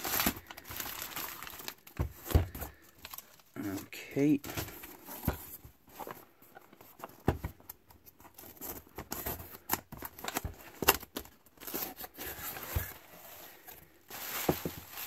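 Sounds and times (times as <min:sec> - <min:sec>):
cardboard box scrapes and rustles: 0:11.6 - 0:15.0.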